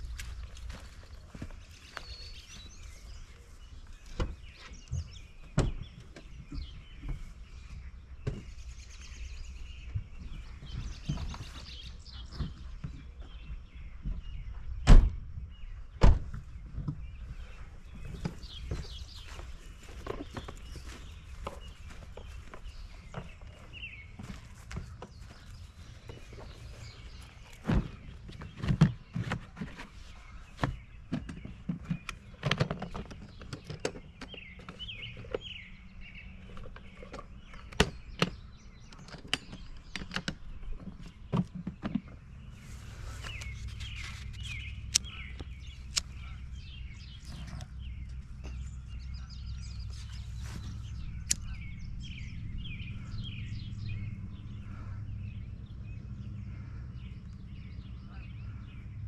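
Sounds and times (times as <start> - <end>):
steady low rumble: 0.0 - 29.1, 42.2 - 59.0
birds chirping: 0.0 - 59.0
sharp clicks: 43.4 - 46.2, 51.2 - 51.6.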